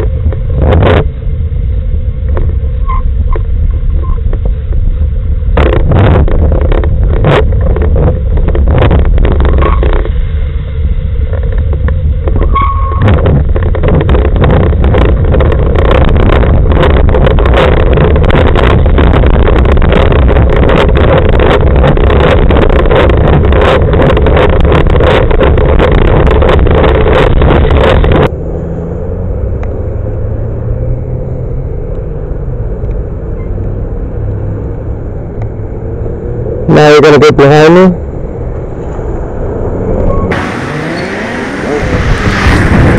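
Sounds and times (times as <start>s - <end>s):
faint motor vehicle hum: 0.0s - 42.9s
wind and road rumble: 0.0s - 42.9s.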